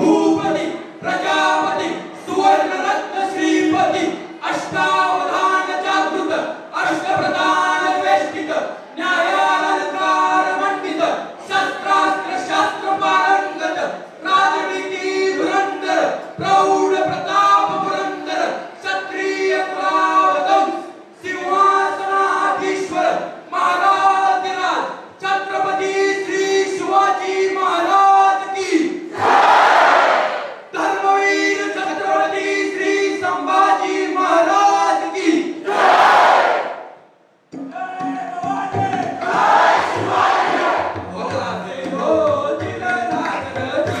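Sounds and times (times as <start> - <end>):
young men singing through speakers: 38.0 - 44.0.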